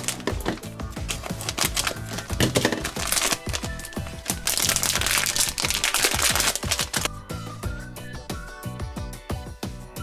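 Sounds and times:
foil bag crinkling: 0.0 - 7.1
scissors cutting foil: 0.0 - 7.1
background music with steady beat: 0.0 - 10.0.

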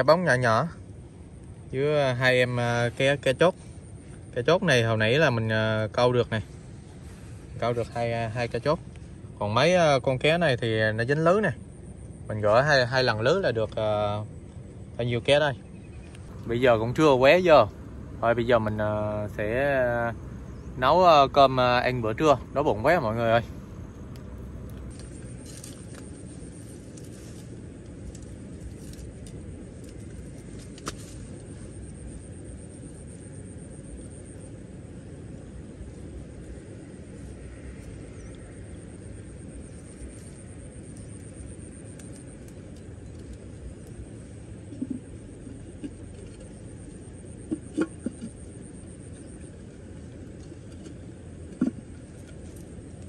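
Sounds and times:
low rumble: 10.6 - 53.0
twigs snapping in fire: 23.6 - 31.4.

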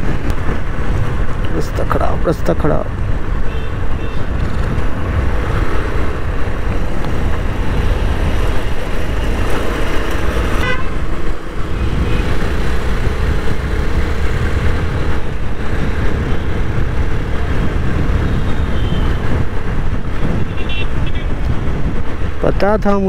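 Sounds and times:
motorcycle engine and wind rumble: 0.0 - 23.0
vehicle horn toot: 3.5 - 4.3, 10.6 - 11.0, 20.4 - 21.3.

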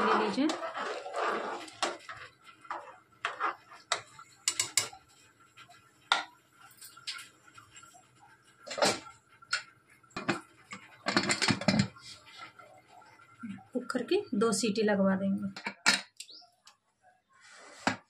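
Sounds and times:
spatula scraping metal pot: 0.0 - 5.0.

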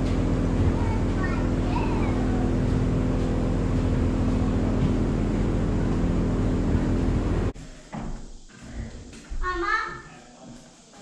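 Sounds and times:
machine hum with low tones: 0.0 - 7.6.

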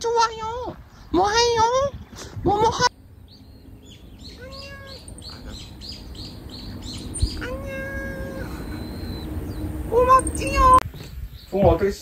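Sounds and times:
bird chirping: 0.3 - 12.0
long level bird call: 0.8 - 11.6.

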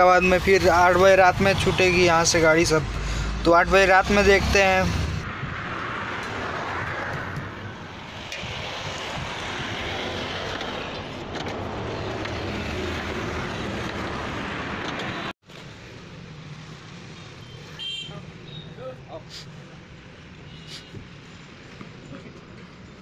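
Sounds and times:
road traffic: 0.0 - 23.0.

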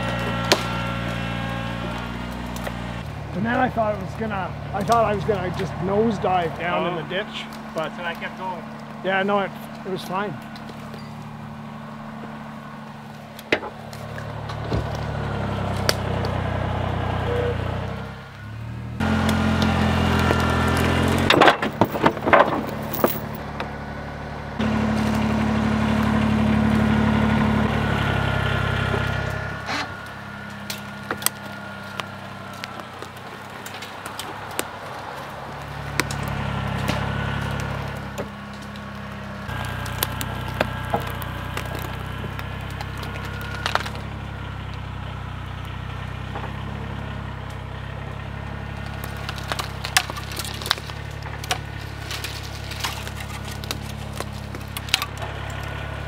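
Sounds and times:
branches snapping: 0.0 - 11.8, 12.5 - 16.4, 19.0 - 23.8, 28.8 - 46.7, 47.4 - 56.0
tractor engine running: 0.0 - 56.0.

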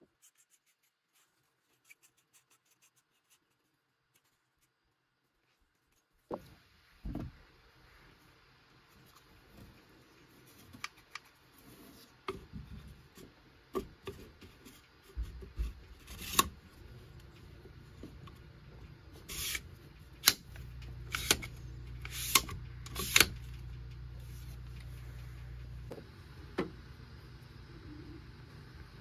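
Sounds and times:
low hum: 16.7 - 29.0.

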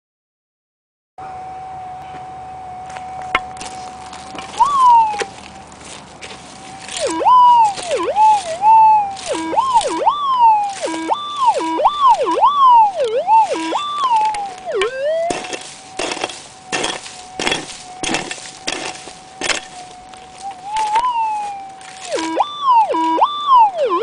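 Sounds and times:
metal detector warbling tone: 3.4 - 5.3, 6.8 - 24.0
pick chopping stony soil: 10.7 - 21.1.

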